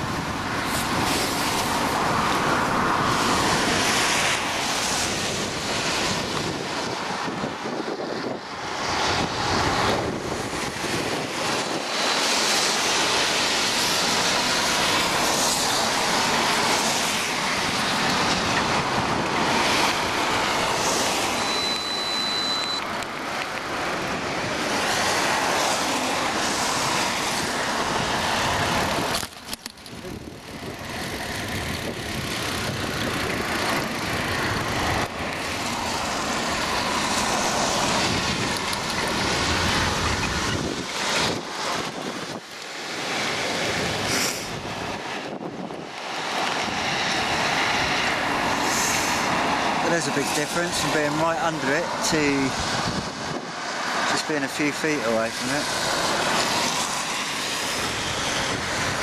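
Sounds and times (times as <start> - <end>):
wind noise on microphone: 0.0 - 54.2, 55.7 - 59.0
tyres hissing on wet road: 0.0 - 59.0
short high-pitched beep: 21.4 - 22.8.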